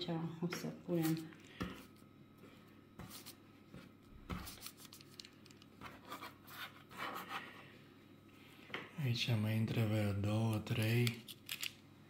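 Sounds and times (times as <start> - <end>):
parchment paper rustling: 3.0 - 7.5.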